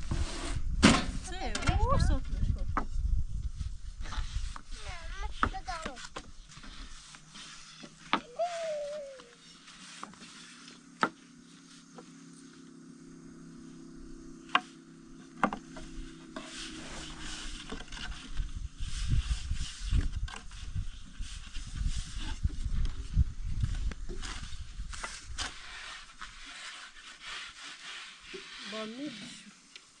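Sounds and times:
low steady hum: 0:06.4 - 0:25.6.

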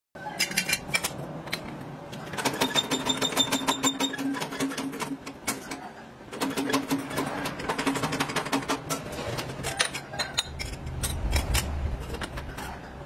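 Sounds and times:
hydraulic press clicking and rattling: 0:00.4 - 0:12.9.

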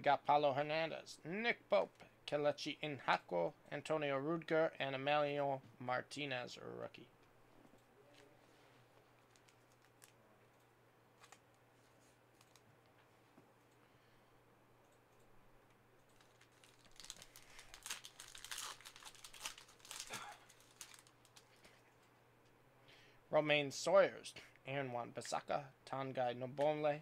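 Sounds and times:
wrapper crinkling and tearing: 0:09.2 - 0:10.2, 0:16.1 - 0:21.8.

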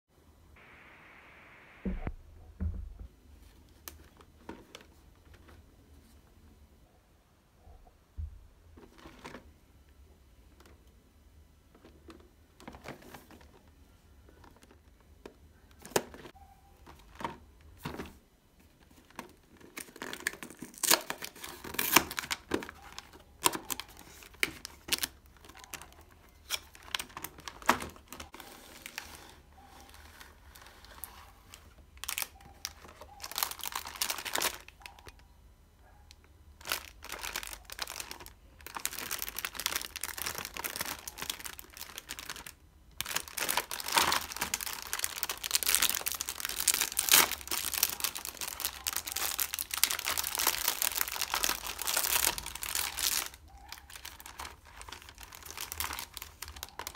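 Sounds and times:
plastic wrapper crinkling: 0:11.7 - 0:35.2, 0:36.2 - 0:56.9.

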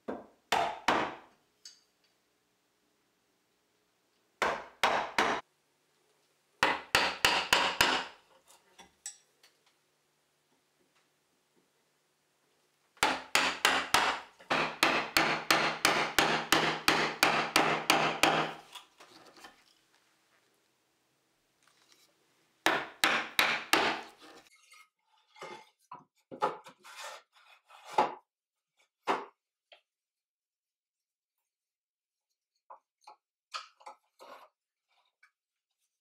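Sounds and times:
mallet striking chisel: 0:06.6 - 0:08.2, 0:13.0 - 0:18.6, 0:22.7 - 0:24.1
chisel knocking and scraping wood: 0:13.0 - 0:19.7, 0:22.7 - 0:24.5, 0:25.3 - 0:28.3.

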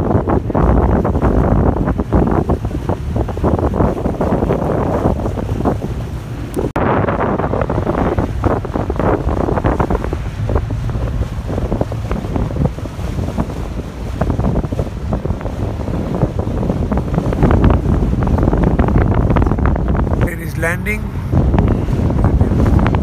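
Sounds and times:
water wash: 0:00.0 - 0:23.0
wind buffeting microphone: 0:00.0 - 0:23.0.

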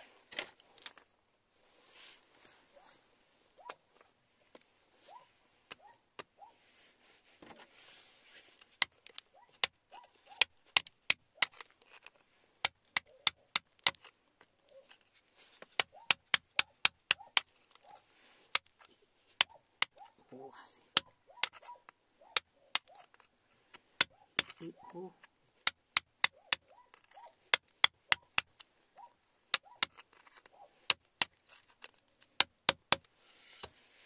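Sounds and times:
metal pick tapping rock: 0:24.0 - 0:24.7, 0:25.6 - 0:28.6, 0:29.5 - 0:30.3, 0:30.9 - 0:33.1.

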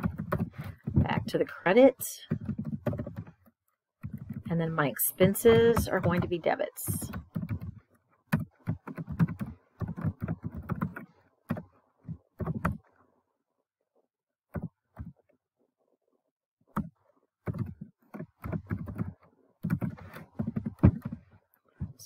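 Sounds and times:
typing on computer keyboard: 0:00.0 - 0:01.1, 0:02.2 - 0:03.4, 0:04.0 - 0:04.6, 0:05.2 - 0:12.9, 0:16.8 - 0:21.3.

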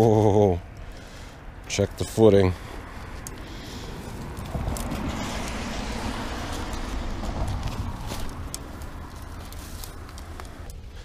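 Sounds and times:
car rumbling over bridge: 0:00.6 - 0:10.7
footsteps on snowy rocks and grass: 0:02.7 - 0:10.8.

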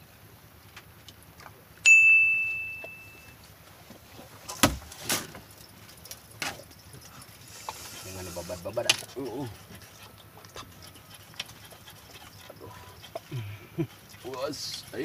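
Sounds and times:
bell ding: 0:01.9 - 0:03.4.

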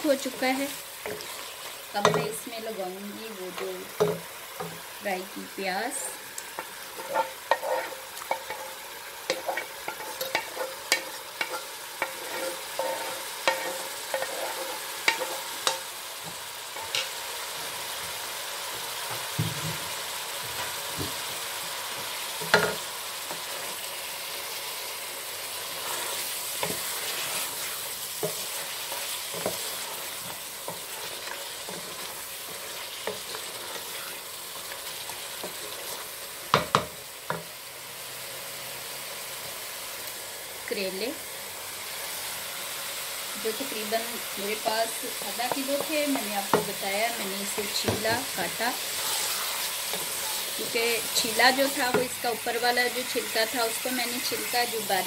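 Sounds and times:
meat sizzling: 0:00.0 - 0:55.0
spatula scraping and knocking pot: 0:06.6 - 0:17.1.

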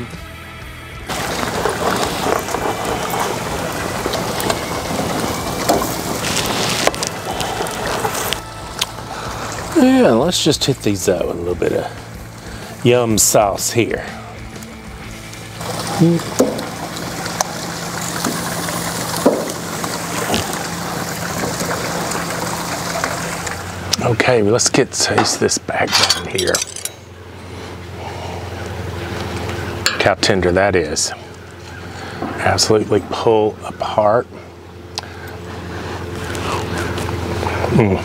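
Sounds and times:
low hum: 0:00.0 - 0:24.6, 0:25.2 - 0:38.0
meat sizzling on grill: 0:01.1 - 0:24.4.

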